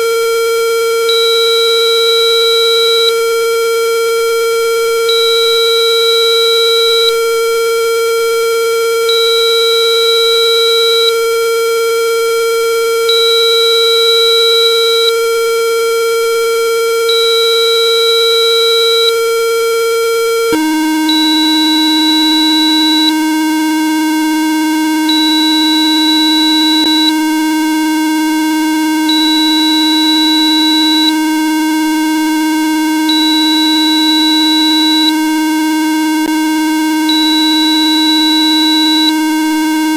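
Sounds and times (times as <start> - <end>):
steady electronic test tone: 0.0 - 39.9
higher tone switching on and off: 20.5 - 27.4, 37.0 - 39.5.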